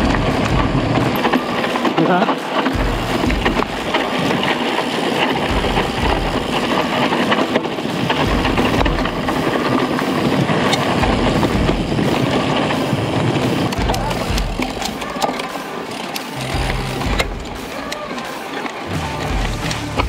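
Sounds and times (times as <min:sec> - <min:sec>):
bike rattling and clicking: 0:00.0 - 0:20.0
tyres rushing on gravel: 0:00.0 - 0:20.0
wind buffeting microphone: 0:02.7 - 0:14.9.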